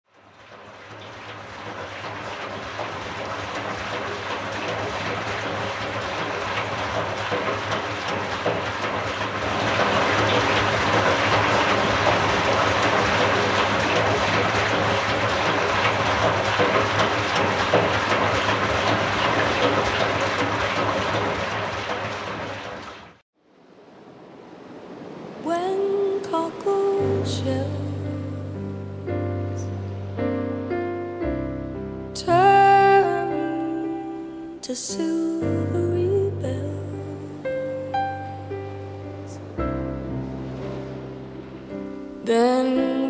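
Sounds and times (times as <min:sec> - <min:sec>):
washing machine low hum: 0:00.1 - 0:23.2, 0:32.2 - 0:43.0
water sloshing in washing machine: 0:00.1 - 0:23.2, 0:39.1 - 0:43.0.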